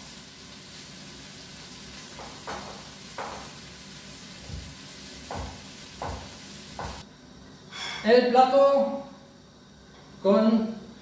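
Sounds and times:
faint steady hiss: 0.0s - 11.0s
knife cuts knocking on wooden board: 5.3s - 7.0s.

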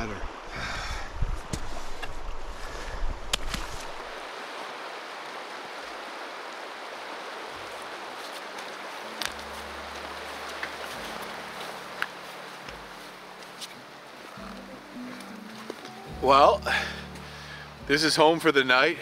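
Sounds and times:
river water flowing: 0.0s - 19.0s
low steady music notes: 9.0s - 19.0s.

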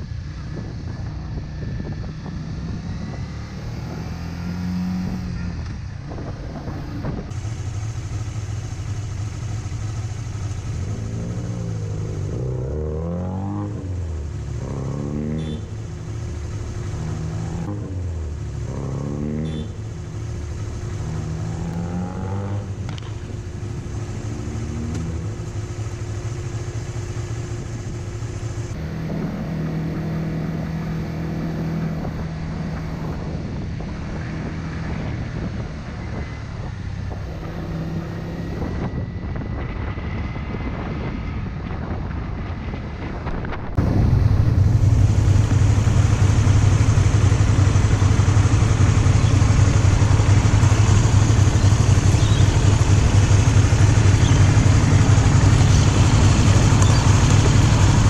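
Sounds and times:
wind noise on microphone: 0.0s - 7.4s, 27.5s - 58.0s
motorcycle engine shifting gears: 0.0s - 58.0s.

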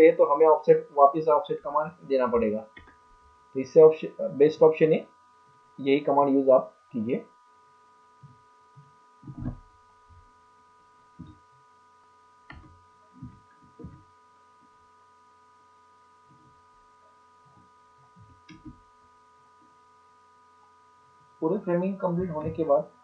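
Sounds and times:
faint electrical hum: 0.0s - 23.0s
low thumps: 8.2s - 10.3s, 11.2s - 11.5s, 12.5s - 14.1s, 22.2s - 22.8s.

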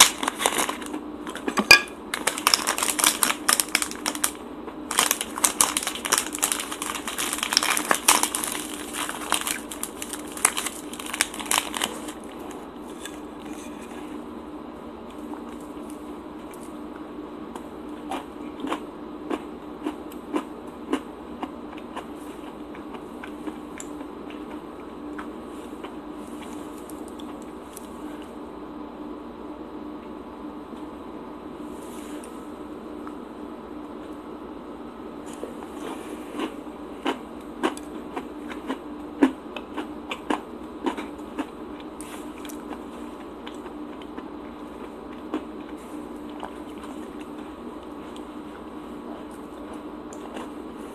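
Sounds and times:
chewing crunches: 0.0s - 1.6s, 2.2s - 14.0s, 17.6s - 28.3s, 35.3s - 50.9s
steady low hum: 0.0s - 50.9s.

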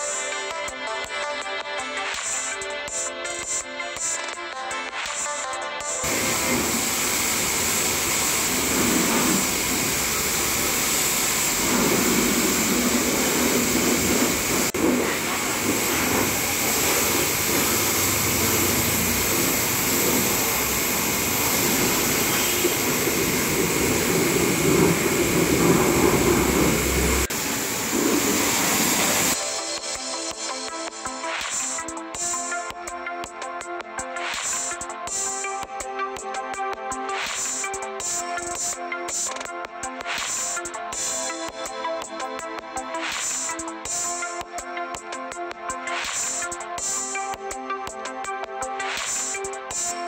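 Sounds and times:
machine noise: 6.0s - 29.6s
pressure washer spraying: 6.0s - 29.6s.

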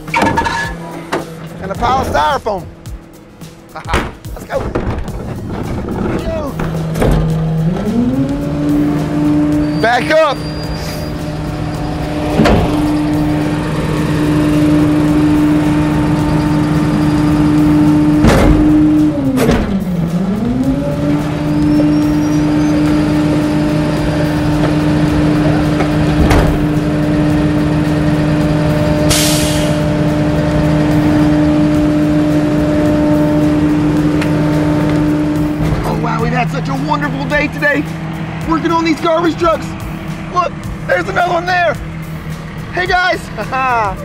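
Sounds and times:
garbage truck engine humming: 0.0s - 44.0s
heavy clunks: 3.8s - 8.0s, 12.1s - 13.3s, 18.1s - 19.9s, 25.7s - 26.8s
air hiss: 29.1s - 29.9s.

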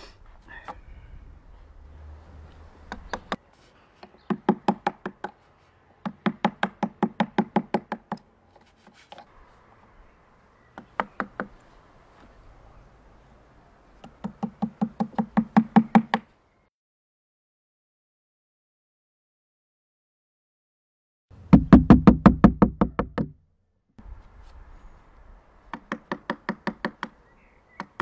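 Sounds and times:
rapid knocking on wooden board: 21.5s - 23.3s.

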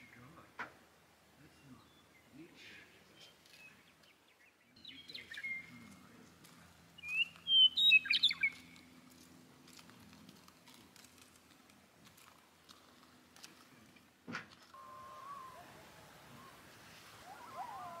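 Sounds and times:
bird chirping and whistling: 7.0s - 8.6s, 14.8s - 18.0s.

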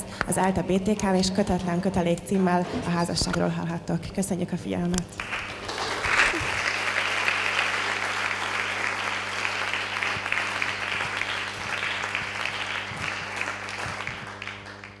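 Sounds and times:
low electrical hum: 0.0s - 15.0s
audience applauding: 5.2s - 15.0s.

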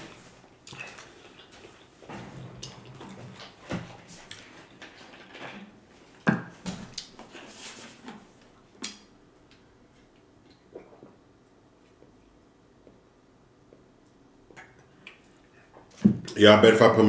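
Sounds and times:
chewing and mouth sounds: 0.6s - 2.0s.

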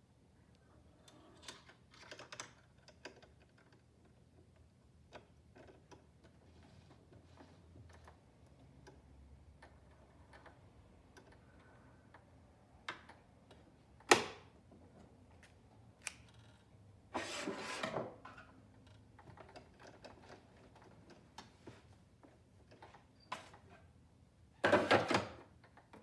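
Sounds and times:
clicks and taps of plastic parts: 1.7s - 14.5s
scrape: 17.2s - 18.1s.

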